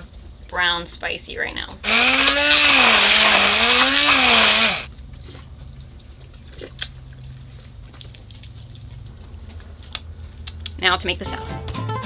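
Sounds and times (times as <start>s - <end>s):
immersion blender whirring: 1.8s - 4.9s.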